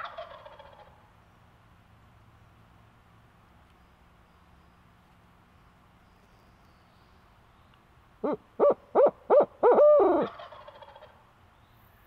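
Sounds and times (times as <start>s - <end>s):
owl hooting: 8.2s - 10.7s.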